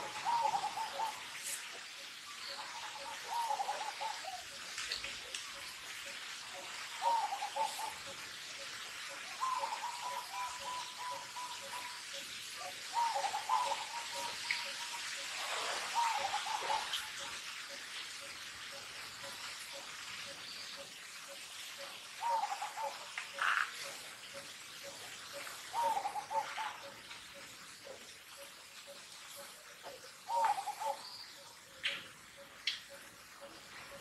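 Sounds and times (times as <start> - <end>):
constant hiss: 0.0 - 34.0
birds whistling: 9.4 - 12.0, 12.9 - 15.0, 30.3 - 32.1.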